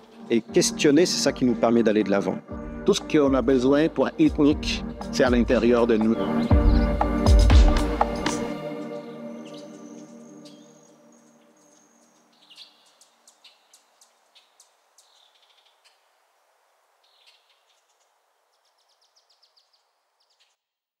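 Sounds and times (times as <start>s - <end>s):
music: 0.0s - 12.2s
birds chirping: 0.0s - 20.6s
soft steady hiss: 9.3s - 21.0s.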